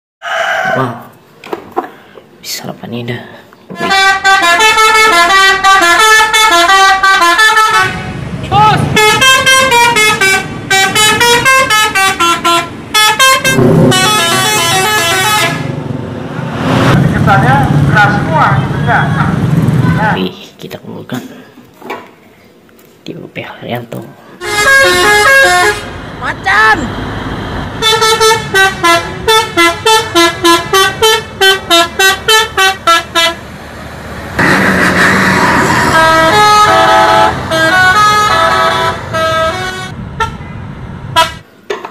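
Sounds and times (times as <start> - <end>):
noisy vehicle sound: 0.2 - 23.2, 23.9 - 41.9
engine and road rumble: 0.2 - 41.9
musical bus horn playing tune: 3.7 - 8.2, 8.8 - 15.8, 24.4 - 26.2, 27.7 - 33.4, 34.4 - 40.5, 41.1 - 41.5.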